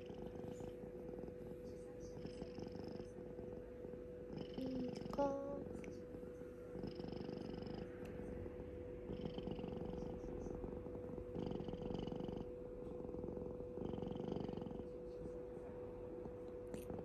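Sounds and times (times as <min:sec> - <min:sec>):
cat purring: 0:00.0 - 0:17.0
steady hum: 0:00.0 - 0:17.0.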